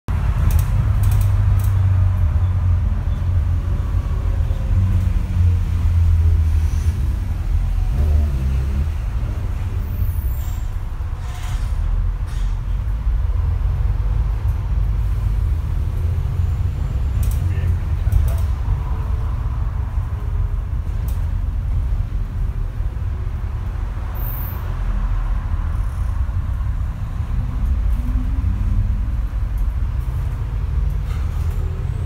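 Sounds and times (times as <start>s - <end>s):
bus engine drone: 0.1s - 32.0s.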